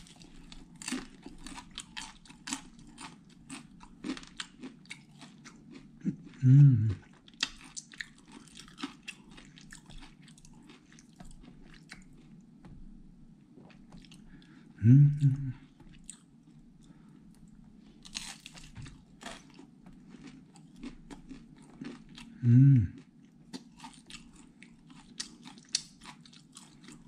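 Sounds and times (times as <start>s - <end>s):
person crunching crisp food: 0.0s - 12.4s, 18.0s - 27.0s
person humming mm: 6.0s - 7.0s, 14.8s - 15.6s, 22.4s - 23.0s.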